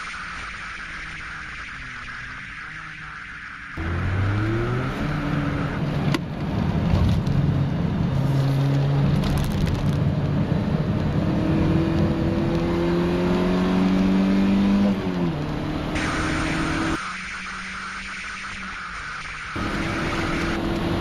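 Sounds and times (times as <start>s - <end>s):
car engine under load: 3.8s - 16.9s.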